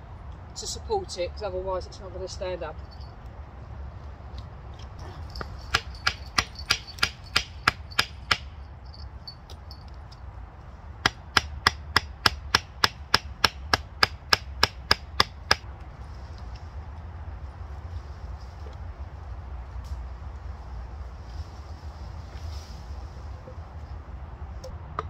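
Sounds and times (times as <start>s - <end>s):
hammer knocking wooden stakes: 5.3s - 8.6s, 11.0s - 15.6s.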